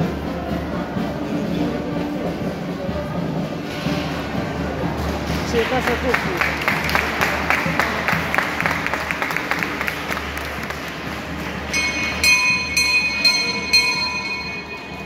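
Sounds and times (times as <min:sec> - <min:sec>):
crowd clapping in rhythm: 0:05.1 - 0:13.8.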